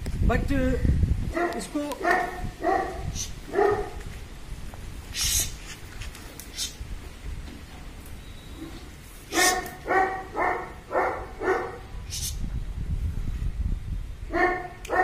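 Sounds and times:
puppy barking: 1.4 - 4.0, 9.3 - 11.9, 14.3 - 15.0
scuffling noise: 3.8 - 8.0.

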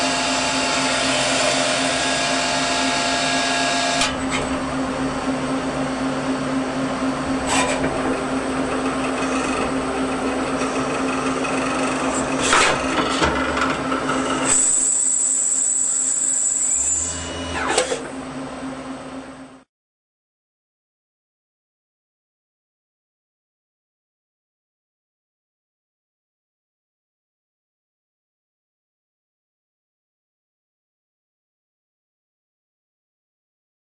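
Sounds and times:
lathe machining hum: 0.0 - 19.6
high machine whine: 0.0 - 19.7.

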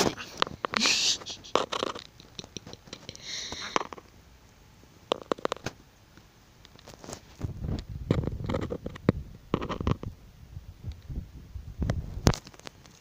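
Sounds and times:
parrot beak clicks and scratching: 1.5 - 4.1, 5.1 - 5.7, 8.1 - 10.1.

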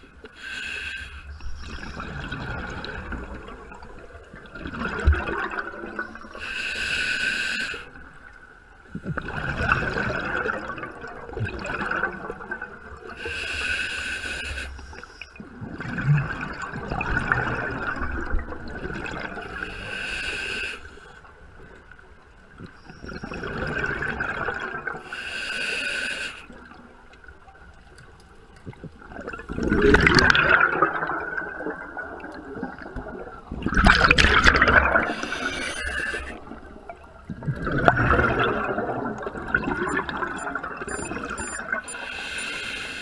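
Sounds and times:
regulator inhale hiss: 0.3 - 1.5, 6.4 - 7.9, 13.2 - 15.3, 19.5 - 21.2, 25.0 - 26.5, 35.1 - 36.4, 41.8 - 43.0
gurgling exhaled bubbles: 1.5 - 6.4, 8.9 - 13.1, 15.4 - 19.6, 23.0 - 25.0, 28.7 - 42.4.

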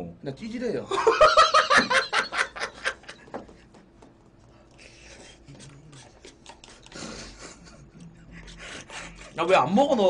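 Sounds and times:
man laughing: 0.9 - 3.6, 6.9 - 9.2.

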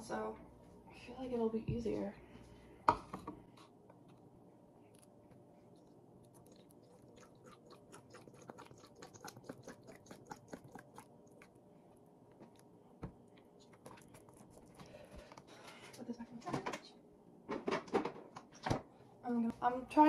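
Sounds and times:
dressing pouring and glugging: 6.2 - 11.6.

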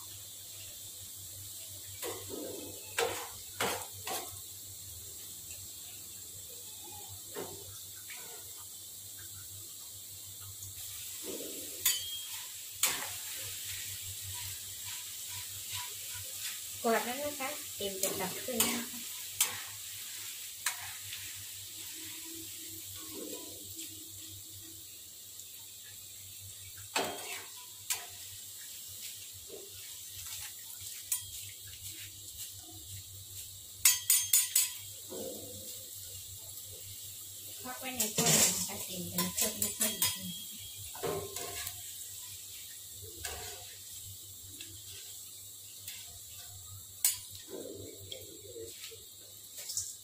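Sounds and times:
food sizzling in hot oil: 0.0 - 50.0
metal spatula clinking on wok: 11.8 - 13.0, 33.8 - 34.9, 39.2 - 41.7
metal utensils clinking on a wok: 11.8 - 13.4, 14.3 - 19.8, 26.9 - 28.2, 31.0 - 31.5, 33.8 - 35.4, 37.8 - 42.4, 47.0 - 47.5.

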